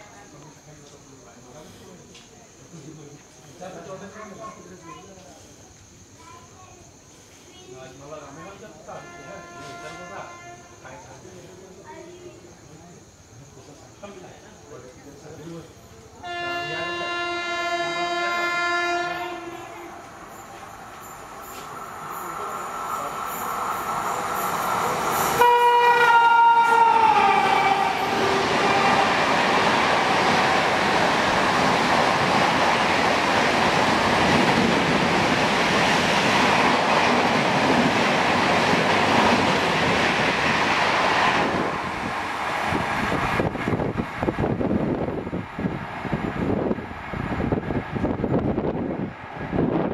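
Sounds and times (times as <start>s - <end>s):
wind gusts from train: 3.2s - 49.9s
train air horn: 8.9s - 10.8s, 16.2s - 20.0s, 25.3s - 29.2s
locomotive approaching: 14.8s - 49.9s
wheels on rail: 15.4s - 49.9s.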